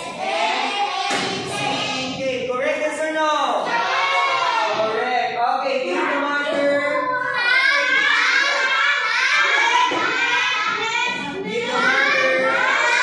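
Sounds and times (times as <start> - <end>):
children chanting in unison: 0.0 - 2.2, 3.6 - 5.0, 6.6 - 13.0.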